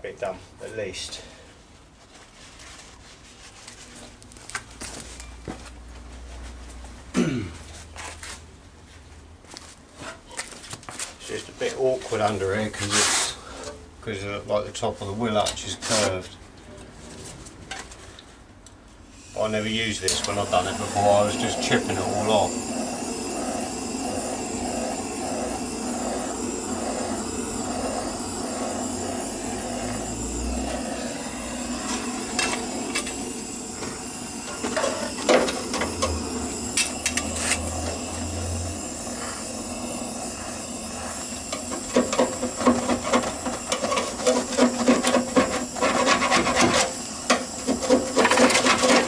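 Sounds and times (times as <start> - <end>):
tool scraping metal: 19.9 - 49.0
rotary power tool motor hum: 20.2 - 49.0.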